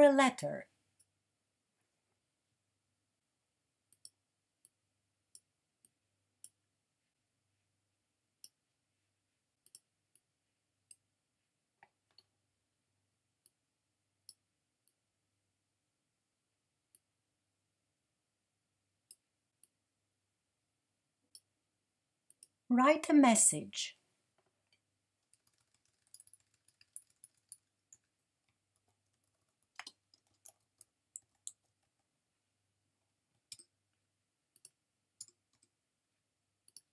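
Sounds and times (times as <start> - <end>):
computer mouse clicks: 9.6 - 10.2, 25.2 - 28.1, 28.8 - 31.9, 34.6 - 35.7, 36.7 - 36.9.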